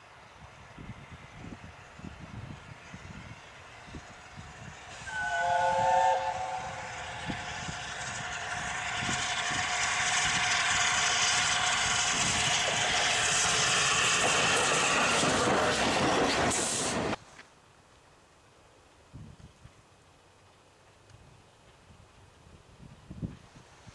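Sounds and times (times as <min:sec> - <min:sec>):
train running past: 0:00.0 - 0:17.2
steam locomotive chime whistle: 0:05.0 - 0:07.7.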